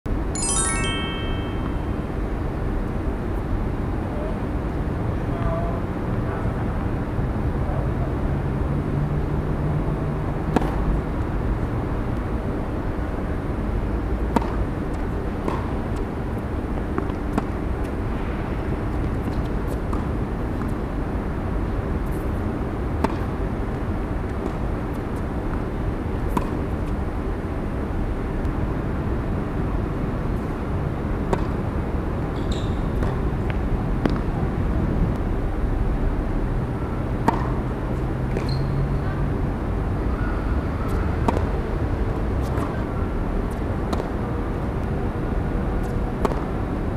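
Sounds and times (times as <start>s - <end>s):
tennis ball struck by racket: 37.2s - 37.6s, 41.2s - 41.5s.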